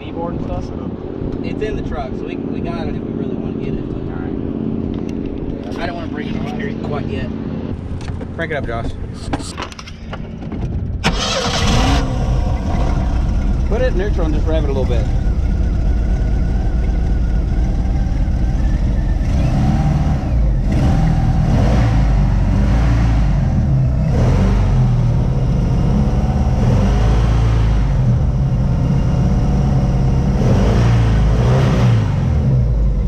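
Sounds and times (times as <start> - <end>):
boat engine revving: 11.0 - 33.0.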